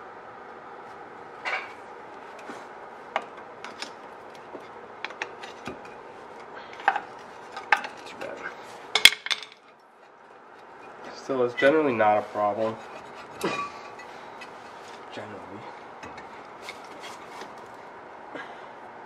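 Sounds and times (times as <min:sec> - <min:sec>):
metallic clicks scrapes and knocks: 0:12.5 - 0:15.2, 0:16.0 - 0:17.8.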